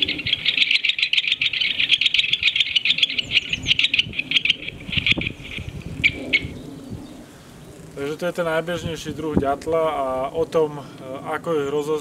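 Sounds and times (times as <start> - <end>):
woodpecker rattle call: 0.0 - 7.0.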